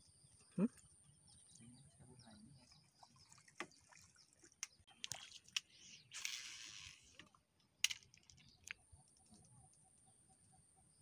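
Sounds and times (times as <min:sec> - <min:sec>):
fishing line hissing off spool: 0:05.7 - 0:07.2.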